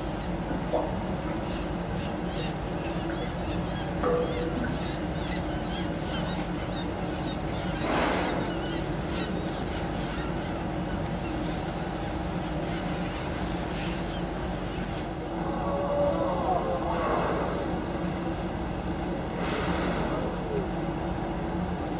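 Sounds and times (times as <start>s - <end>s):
boat engine humming: 0.0s - 21.9s
seabirds calling: 0.0s - 21.9s
whale blowing: 19.3s - 20.3s.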